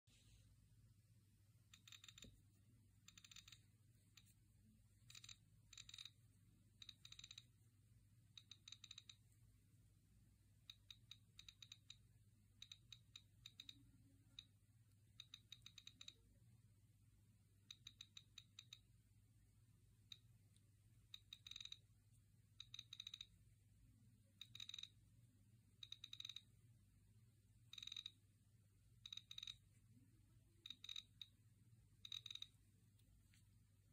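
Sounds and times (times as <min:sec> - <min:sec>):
click wheel ticking: 0:01.7 - 0:02.4, 0:03.0 - 0:03.6, 0:05.0 - 0:06.2, 0:06.8 - 0:07.5, 0:08.3 - 0:09.2, 0:10.6 - 0:12.0, 0:12.6 - 0:14.5, 0:15.1 - 0:16.2, 0:17.7 - 0:18.9, 0:20.0 - 0:21.8, 0:22.6 - 0:23.4, 0:24.4 - 0:25.0, 0:25.8 - 0:26.5, 0:27.7 - 0:28.2, 0:29.0 - 0:29.7, 0:30.6 - 0:31.4, 0:32.0 - 0:33.1.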